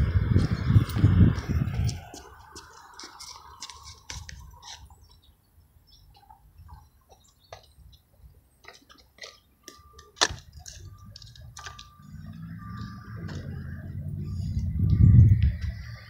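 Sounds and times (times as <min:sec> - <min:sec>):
low rumble: 0:10.9 - 0:16.0.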